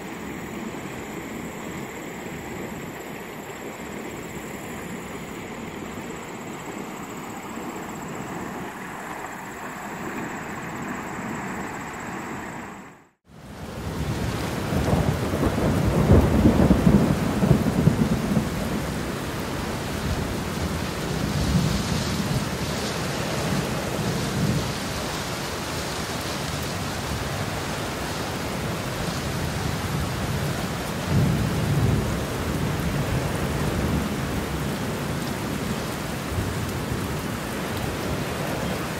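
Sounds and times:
steady rain: 0.0s - 12.5s, 13.1s - 38.9s
floodwater rushing: 0.0s - 38.9s
thunder rolling: 13.6s - 19.2s.

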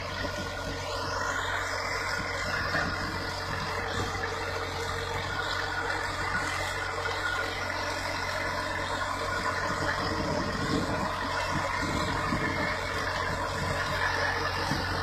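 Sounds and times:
diesel engine running: 0.0s - 15.0s.

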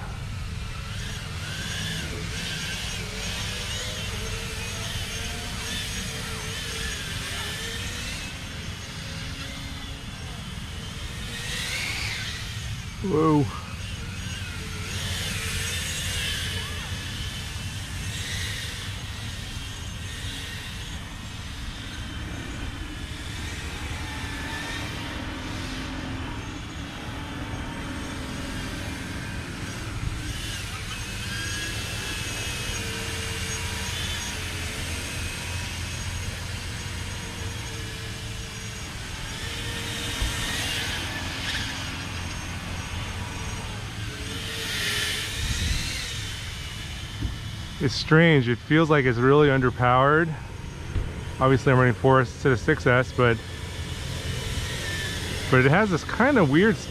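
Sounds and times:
quadcopter motors whining: 0.0s - 56.9s.

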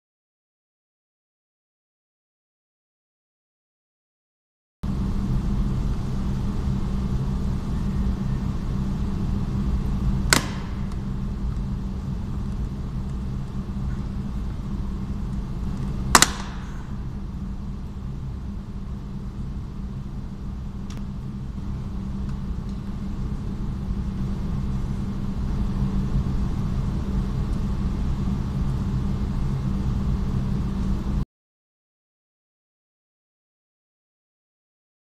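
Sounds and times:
steady low hum: 4.8s - 31.2s.

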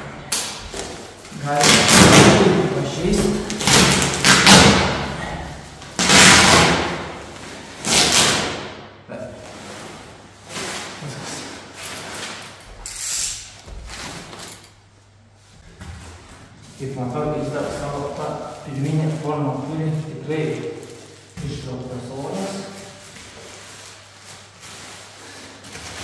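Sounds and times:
plastic packaging rustling: 0.5s - 8.2s, 13.7s - 26.0s.

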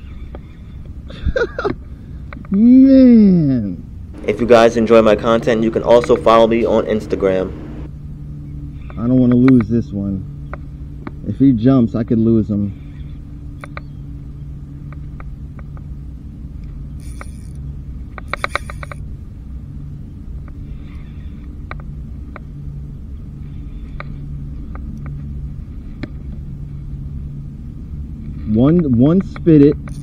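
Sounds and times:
low rumble: 3.8s - 8.8s
fishing reel clicks: 16.8s - 19.0s, 29.4s - 30.0s.

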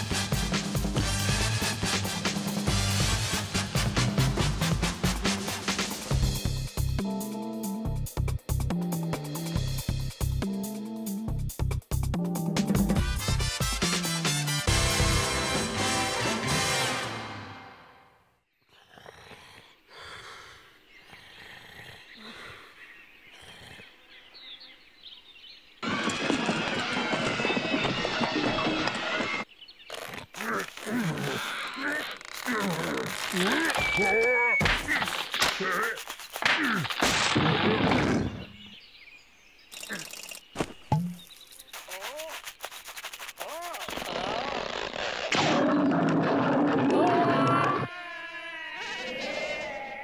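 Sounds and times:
outdoor ambience: 17.9s - 50.0s
cartoon bear snoring: 18.7s - 20.3s, 21.1s - 22.7s, 23.3s - 24.0s
faint bird chirps: 33.4s - 34.7s.

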